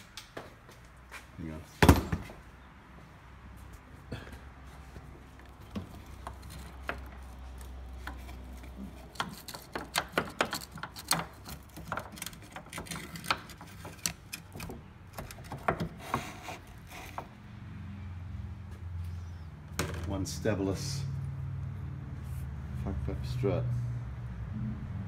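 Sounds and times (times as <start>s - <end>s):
hands and tools clicking on tailgate: 9.1s - 16.0s.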